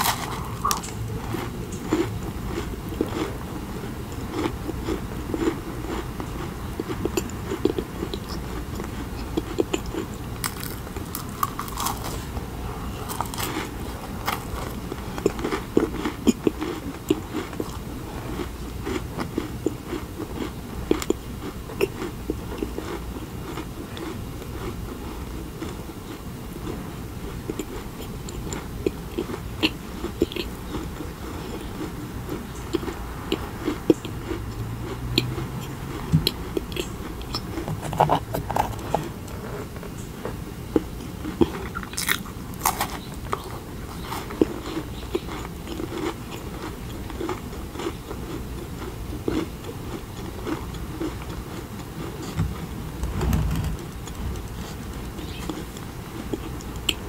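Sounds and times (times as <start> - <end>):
crisp bite into cookie: 0.0 - 2.0
person chewing with mouth clicks: 0.0 - 40.1, 40.7 - 57.0.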